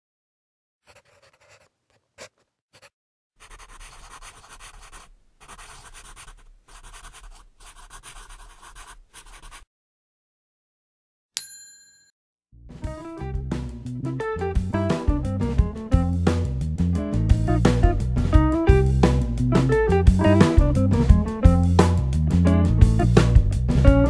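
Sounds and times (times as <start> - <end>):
pencil scratching on paper: 0.8 - 9.7.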